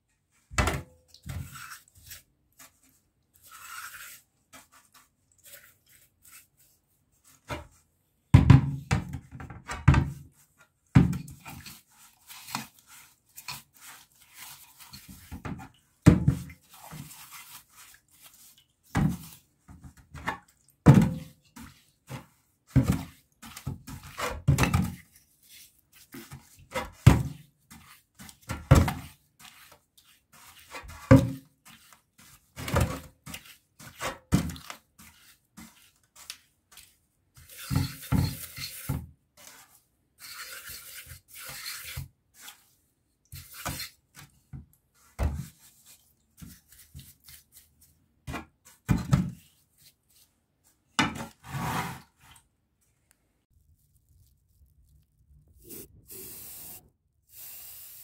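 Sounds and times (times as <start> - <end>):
brush scrubbing: 1.2 - 7.9, 10.2 - 24.3, 25.0 - 52.4, 53.5 - 56.8.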